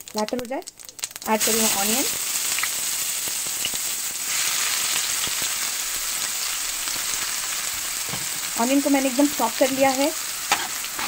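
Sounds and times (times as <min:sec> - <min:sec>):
small crackling pops: 0:00.0 - 0:01.4, 0:02.0 - 0:03.8
onion sizzling in hot oil: 0:00.0 - 0:11.0.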